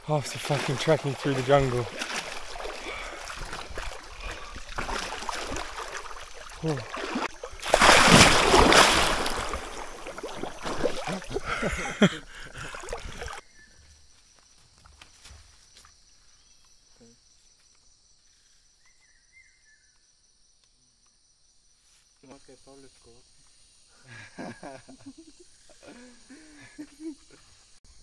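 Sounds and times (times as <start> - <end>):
water splashing and sloshing: 0.0 - 13.4
person plunging into water: 0.3 - 13.4.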